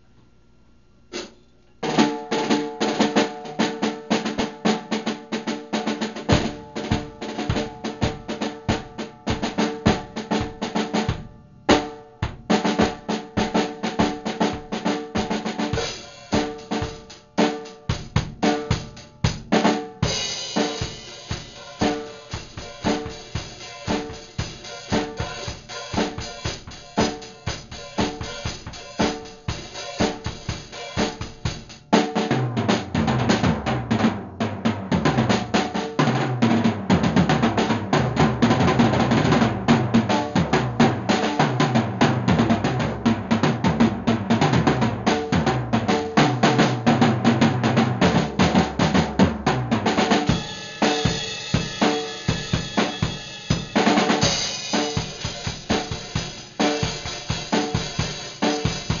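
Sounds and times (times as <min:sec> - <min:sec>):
drum kit solo: 0:01.0 - 0:59.0
cymbals washing: 0:15.7 - 0:17.2, 0:20.0 - 0:31.7, 0:50.1 - 0:59.0.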